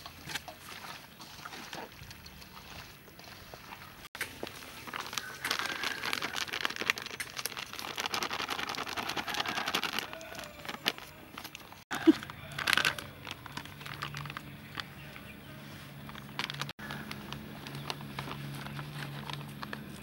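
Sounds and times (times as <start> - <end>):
plastic packet crinkling: 4.3 - 15.2, 16.0 - 20.0.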